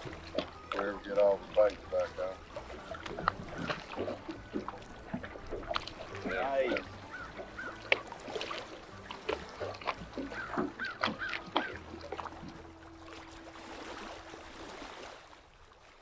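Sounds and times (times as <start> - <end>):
fishing tackle clicks and knocks: 0.0 - 12.6.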